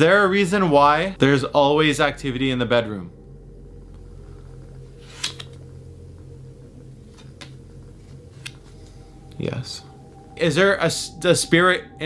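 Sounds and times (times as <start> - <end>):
low room tone hum: 0.0 - 12.0
playing cards clicking and snapping: 5.2 - 5.6.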